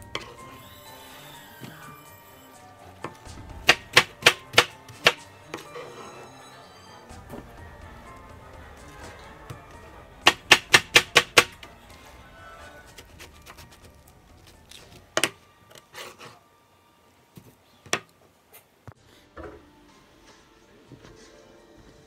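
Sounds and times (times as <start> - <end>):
faint background music: 0.0 - 22.0
knife chopping watermelon: 3.6 - 5.2, 10.3 - 11.6.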